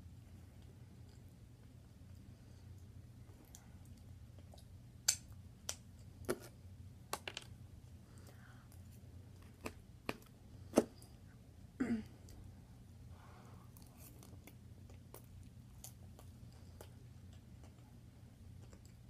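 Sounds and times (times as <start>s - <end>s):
faint low hum: 0.0s - 19.0s
eating clicks and smacks: 3.4s - 6.0s.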